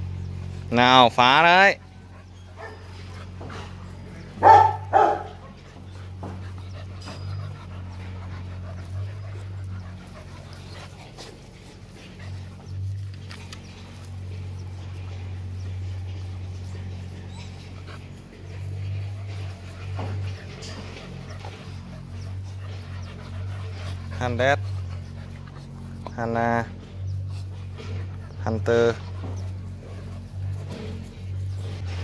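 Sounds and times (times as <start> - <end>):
puppies scuffling: 0.0 - 32.0
steady low hum: 0.0 - 32.0
puppy barking: 1.8 - 3.1, 4.3 - 5.6.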